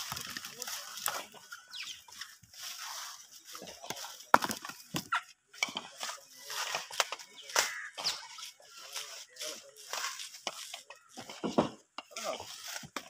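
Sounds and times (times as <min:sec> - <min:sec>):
coconuts knocking together: 0:00.0 - 0:01.4, 0:03.7 - 0:08.1.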